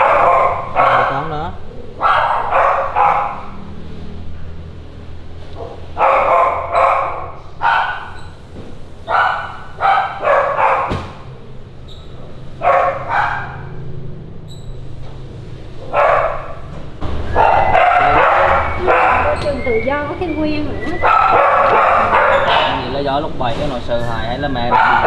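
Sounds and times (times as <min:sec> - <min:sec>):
dog barking: 0:00.0 - 0:03.6, 0:05.6 - 0:08.3, 0:09.0 - 0:11.3, 0:12.6 - 0:13.8, 0:15.8 - 0:16.7, 0:17.3 - 0:19.6, 0:21.0 - 0:23.0, 0:24.5 - 0:25.0.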